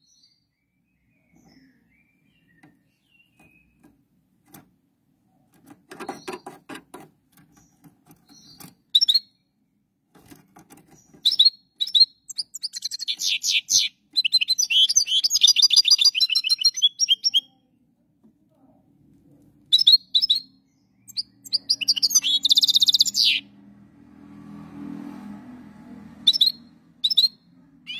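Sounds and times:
finch twittering song: 0:00.0 - 0:04.6, 0:05.9 - 0:06.6, 0:07.4 - 0:09.5, 0:10.8 - 0:17.6, 0:19.7 - 0:23.5, 0:26.2 - 0:27.9.

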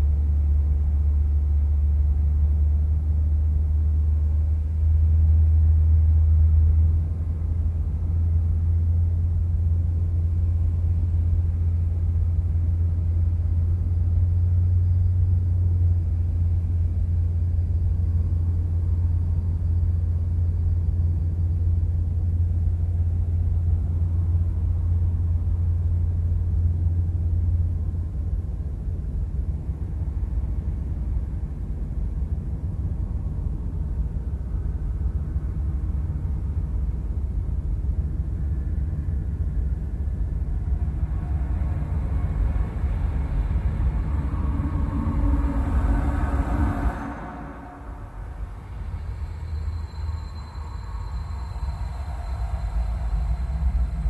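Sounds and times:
low electronic drone: 0:00.0 - 0:54.0.

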